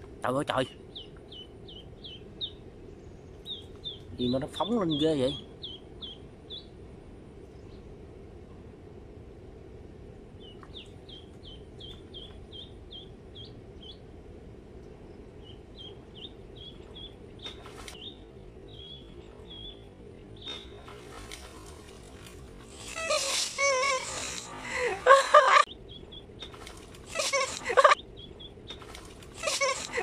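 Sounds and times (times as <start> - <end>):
low background noise: 0.0 - 30.0
duckling peeping: 0.9 - 2.6, 3.4 - 6.7, 10.4 - 14.0, 15.4 - 20.9, 22.7 - 30.0.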